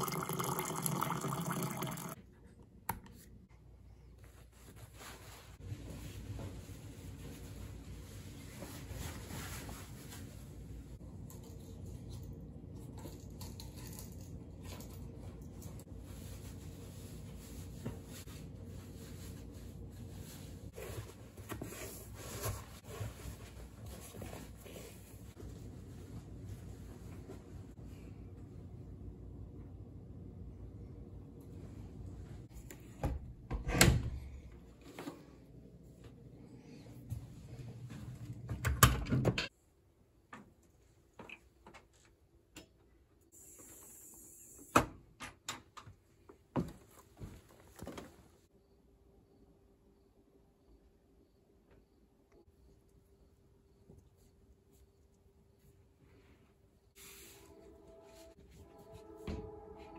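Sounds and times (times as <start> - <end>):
low room hum: 0.0 - 44.7, 45.7 - 59.9
clothes rustling: 4.1 - 11.0, 15.8 - 28.0.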